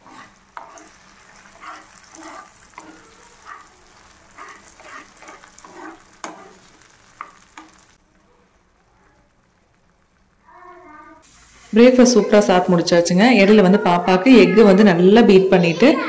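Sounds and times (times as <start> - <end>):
spatula scraping a frying pan: 0.0 - 8.0
hot oil sizzling: 0.0 - 13.8.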